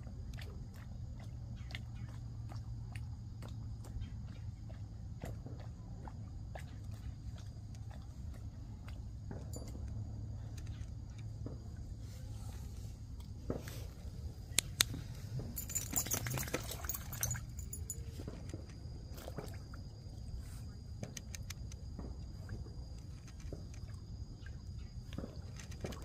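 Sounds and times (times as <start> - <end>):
dog splashing through water: 15.6 - 17.8
water dripping: 15.6 - 18.0.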